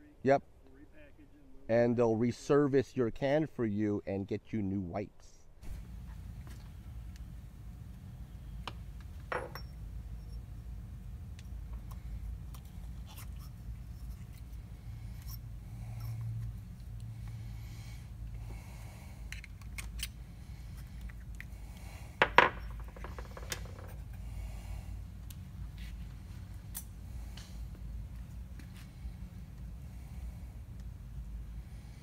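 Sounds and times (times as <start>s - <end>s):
steady low hum: 5.4s - 32.0s.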